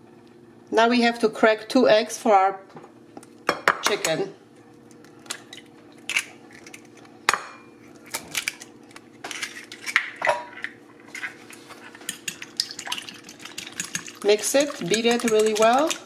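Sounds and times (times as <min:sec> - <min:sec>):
egg cracking tap: 0:12.0 - 0:16.0.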